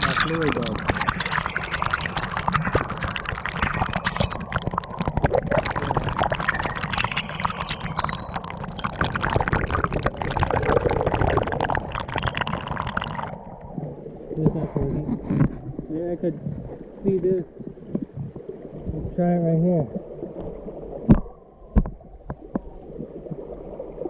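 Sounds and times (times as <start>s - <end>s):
water pouring and splashing: 0.0s - 19.2s.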